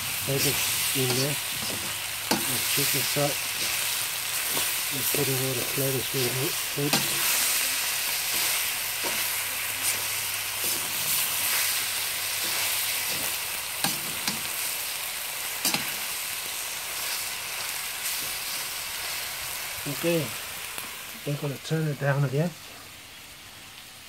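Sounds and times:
meat and vegetables sizzling in wok: 0.0 - 24.0
metal spatula scraping pan: 6.9 - 14.5.

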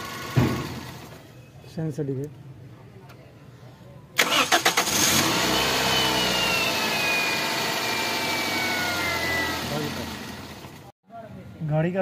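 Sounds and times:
starter cranking engine: 4.2 - 5.4
engine whine: 4.6 - 10.9
engine idling: 6.8 - 10.9.

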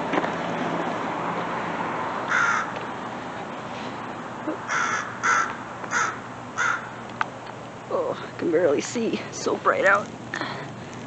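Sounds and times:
crows cawing: 2.3 - 2.8, 4.7 - 7.0.

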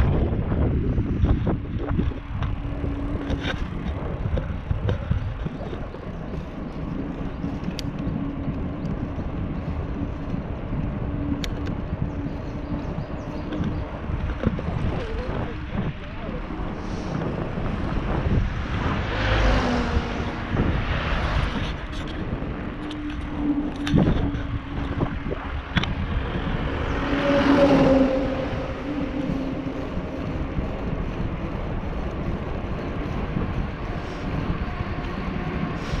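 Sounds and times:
bicycle rolling rumble: 0.0 - 36.0
motor vehicle passing: 0.0 - 36.0
wind buffeting microphone: 0.0 - 36.0.

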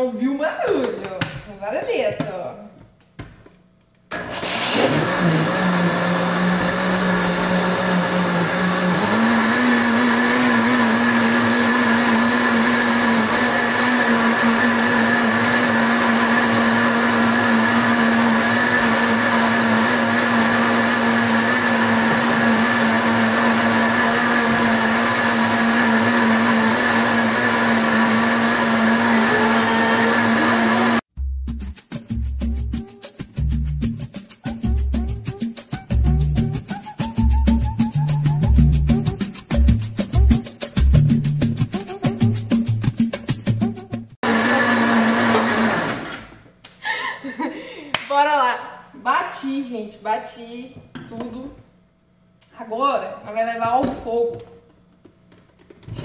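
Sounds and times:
blender running: 4.1 - 31.1, 44.2 - 46.4.

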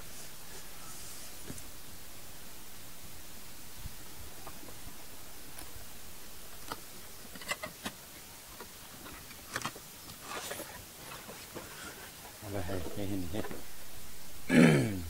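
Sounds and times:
steady hiss: 0.0 - 15.0
cardboard rustle: 9.0 - 12.3.

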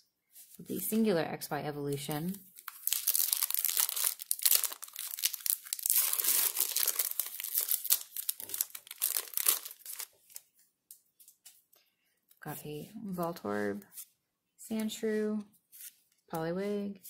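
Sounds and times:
foil wrapper crinkling and tearing: 2.4 - 10.5.

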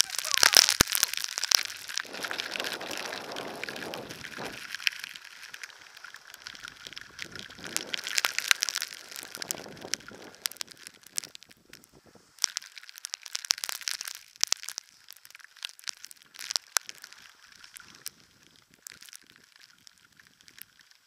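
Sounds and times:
snow ticking on camera: 0.0 - 21.0
wind gusting over microphone: 1.7 - 4.8, 6.4 - 8.2, 9.1 - 10.9.

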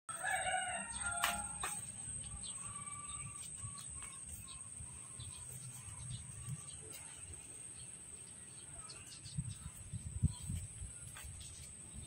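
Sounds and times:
birds chirping: 0.1 - 12.0
high-pitched insect drone: 0.4 - 6.8.

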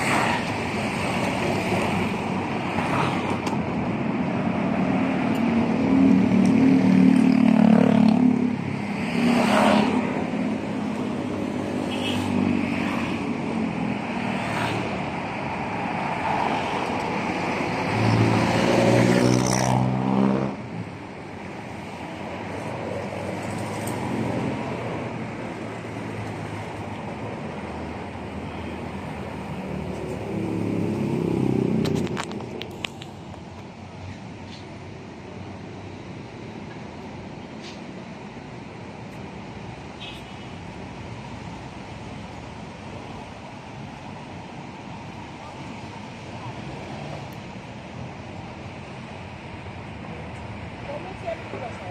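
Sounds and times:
car passing: 0.0 - 32.8
traffic noise: 0.0 - 51.9.

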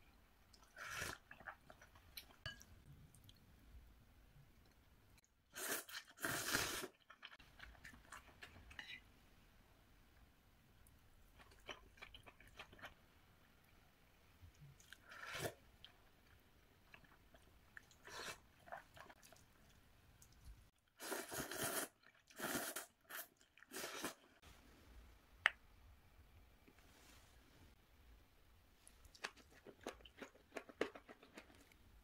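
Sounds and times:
slurping noodles: 5.6 - 7.0, 21.0 - 24.3
sipping broth: 21.0 - 24.3
person chewing: 29.1 - 31.8.

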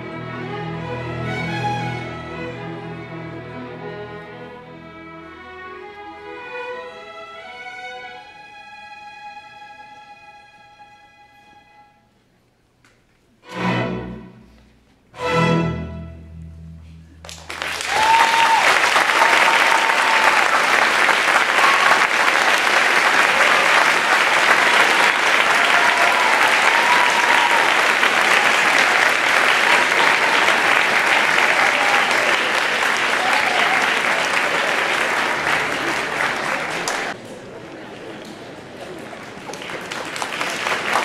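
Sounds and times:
string orchestra chords: 0.0 - 12.1, 13.4 - 17.6, 27.6 - 38.4
audience applause: 17.2 - 41.0.

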